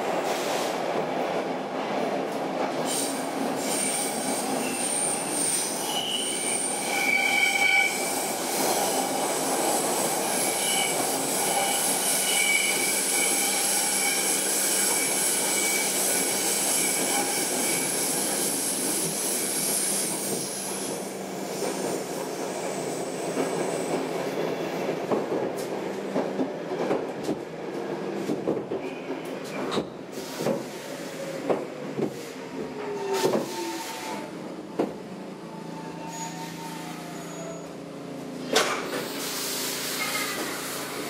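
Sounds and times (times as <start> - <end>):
train clacks and knocks on track: 0.0 - 35.0, 38.4 - 39.2, 39.9 - 41.0
subway wheel squeal: 2.8 - 24.9, 28.8 - 34.4, 35.5 - 37.9, 38.8 - 41.0.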